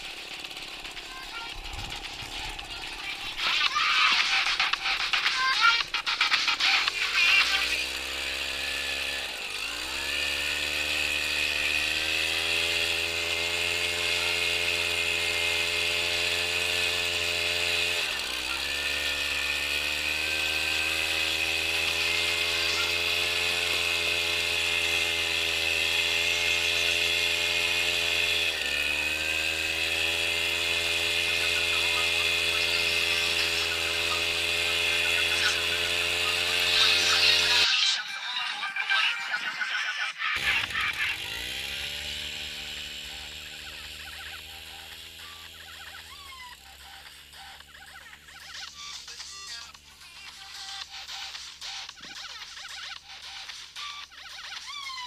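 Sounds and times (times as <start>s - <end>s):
tractor engine running: 0.0s - 37.7s, 40.4s - 53.8s.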